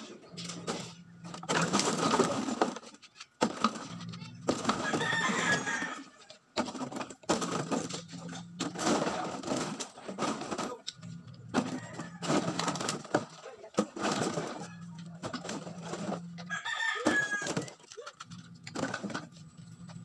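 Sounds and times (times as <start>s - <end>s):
plastic bottles crinkling: 6.6s - 20.0s.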